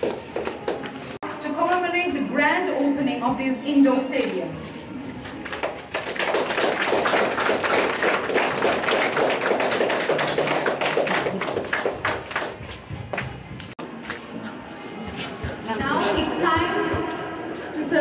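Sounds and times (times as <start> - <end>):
people clapping: 0.0 - 1.2, 5.4 - 14.2.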